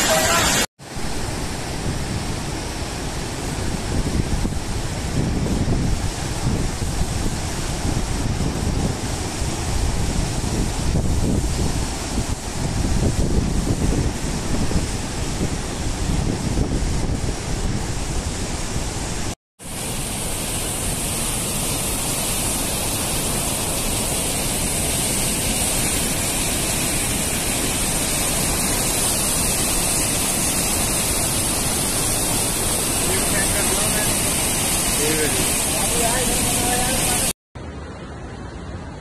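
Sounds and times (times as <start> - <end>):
flooded river rushing: 0.0 - 39.0
wind buffeting microphone: 1.7 - 19.4.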